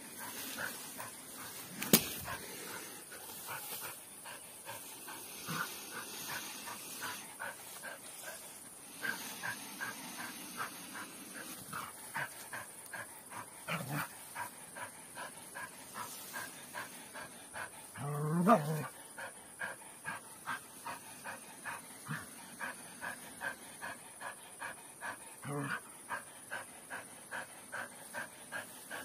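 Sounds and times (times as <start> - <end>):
dog panting: 0.0 - 18.0, 18.8 - 29.0.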